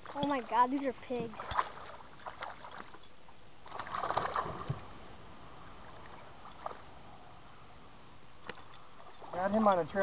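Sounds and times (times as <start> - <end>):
fish splashing in water: 0.0 - 4.9.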